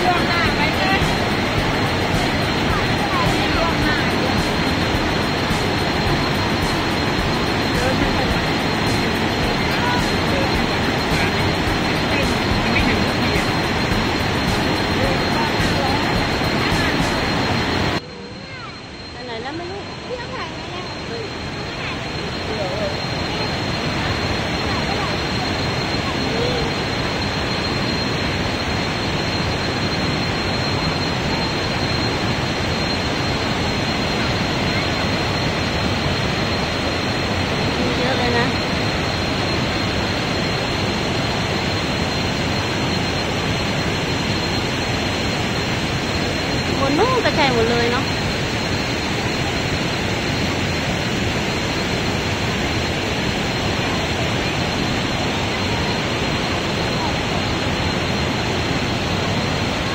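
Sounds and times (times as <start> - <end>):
waterfall rushing: 0.0 - 18.0, 19.8 - 59.9.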